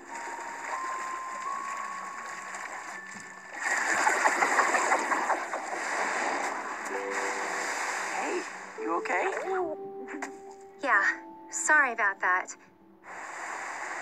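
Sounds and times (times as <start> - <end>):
rush of splashing water: 0.0 - 9.6.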